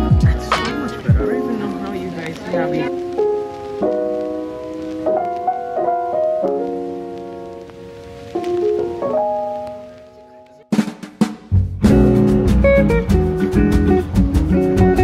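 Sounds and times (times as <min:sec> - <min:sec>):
slow piano chords: 0:00.0 - 0:10.6.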